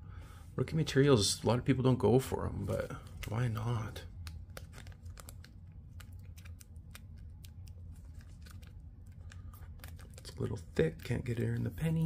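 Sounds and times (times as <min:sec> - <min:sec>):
plastic sleeve rustling: 0:02.6 - 0:12.0.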